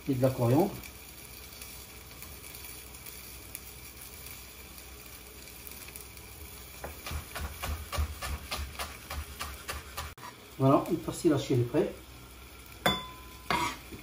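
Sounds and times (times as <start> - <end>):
knife chopping on wooden board: 6.8 - 10.2.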